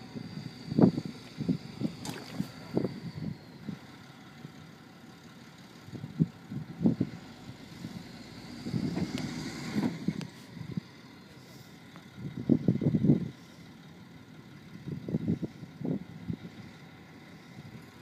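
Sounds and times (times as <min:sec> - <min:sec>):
truck engine running: 0:00.0 - 0:18.0
wind buffeting microphone: 0:00.2 - 0:03.8.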